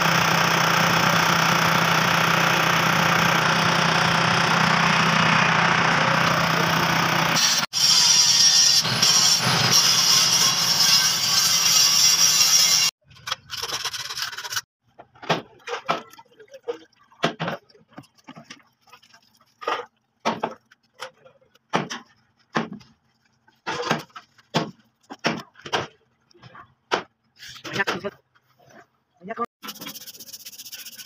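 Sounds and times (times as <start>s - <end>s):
scouring pad scrubbing steel: 29.6s - 31.0s.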